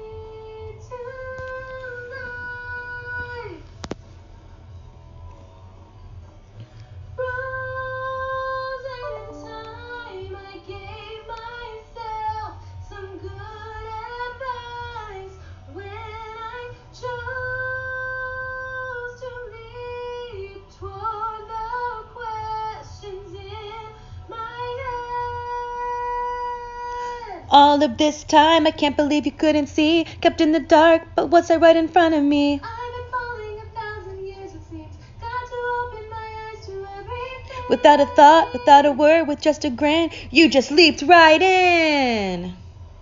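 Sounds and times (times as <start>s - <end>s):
low drone in backing music: 0.0s - 28.8s
woman singing wordless melody: 7.2s - 42.6s.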